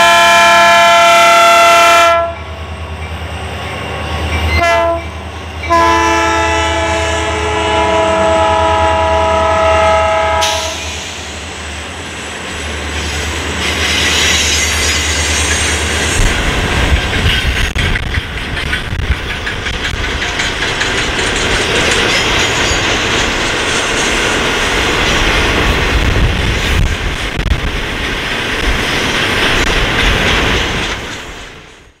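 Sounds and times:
train wheels clicking over rail joints: 0:10.4 - 0:32.0.

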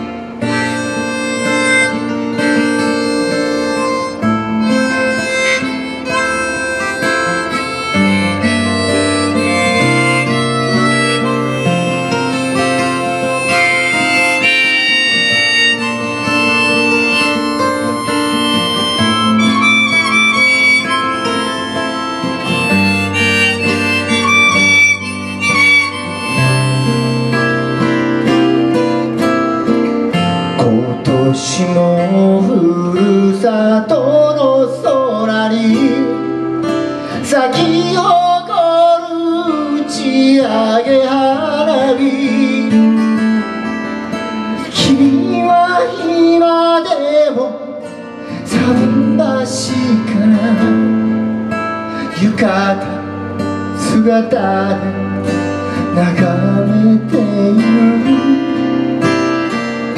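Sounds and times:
acoustic guitars strummed: 0:00.0 - 0:59.9
person singing: 0:30.3 - 0:51.1, 0:52.0 - 0:59.5.

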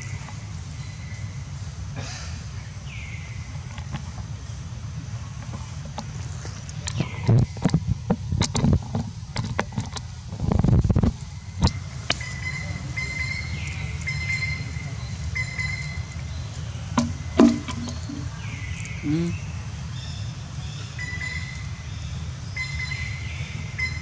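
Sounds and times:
steady low rumble: 0:00.0 - 0:24.0
high chirping calls: 0:12.2 - 0:24.0.

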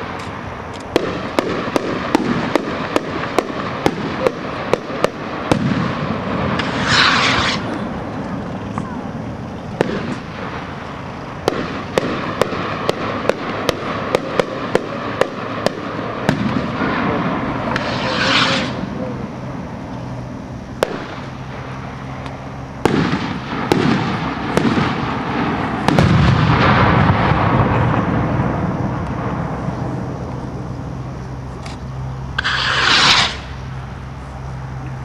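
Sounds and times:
sharp rocket reports: 0:00.0 - 0:31.3, 0:32.3 - 0:33.8
rocket hissing in flight: 0:00.0 - 0:34.7
loud bangs trailing into rumble: 0:00.9 - 0:07.7, 0:11.4 - 0:19.0, 0:22.8 - 0:30.2.

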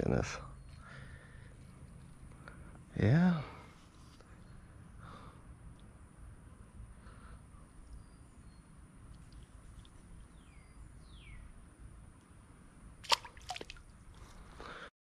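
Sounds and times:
creek ambience: 0:12.8 - 0:14.8
water splashes and drips: 0:13.0 - 0:13.9.

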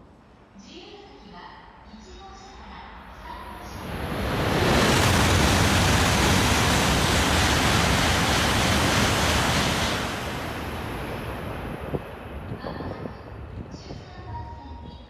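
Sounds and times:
high-speed train passing: 0:03.1 - 0:14.6.

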